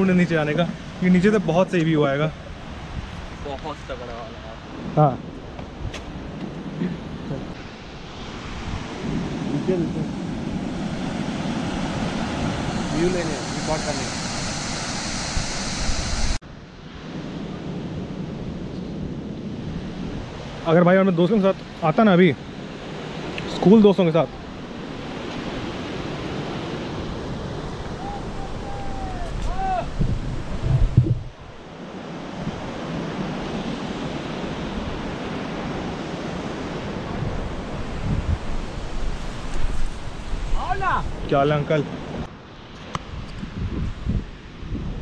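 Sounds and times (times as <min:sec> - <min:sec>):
wind buffeting microphone: 0:00.0 - 0:04.0, 0:24.3 - 0:42.3, 0:43.0 - 0:45.0
waterfall rushing: 0:07.6 - 0:16.4.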